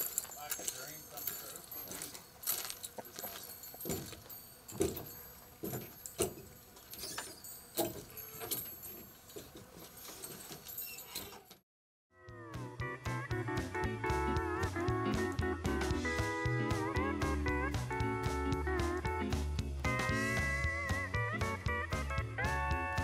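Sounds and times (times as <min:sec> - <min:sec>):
boot footsteps on wooden porch: 0:00.0 - 0:06.8
light metallic jingle: 0:00.0 - 0:11.6
guitar music: 0:12.4 - 0:23.0.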